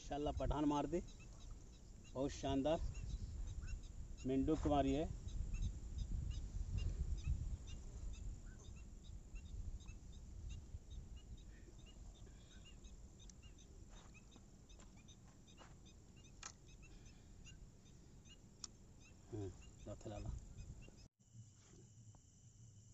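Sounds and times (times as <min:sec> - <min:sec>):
short high bird chirps: 0:00.8 - 0:18.4.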